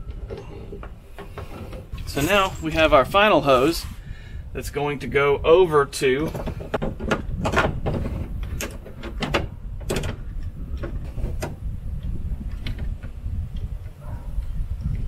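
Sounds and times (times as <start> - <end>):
hose fittings clicking and scraping: 0.0 - 4.1, 6.1 - 14.0
steady low rumble: 0.0 - 15.0.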